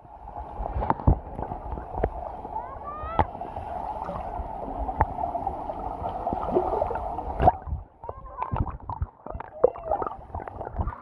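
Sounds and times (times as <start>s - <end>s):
underwater hiss and gurgle: 0.0s - 7.8s.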